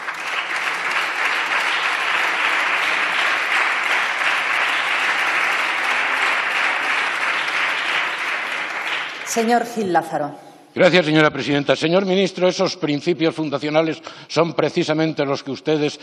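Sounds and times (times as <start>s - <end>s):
crowd applauding: 0.0s - 9.9s.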